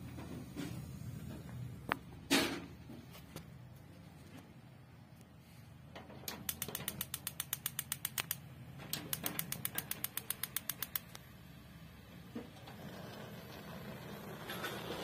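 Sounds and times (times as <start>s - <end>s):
gas stove igniter clicking: 6.3s - 11.3s.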